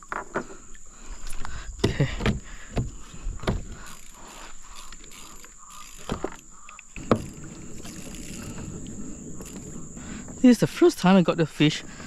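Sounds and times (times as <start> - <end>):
high-pitched insect drone: 3.8 - 12.0.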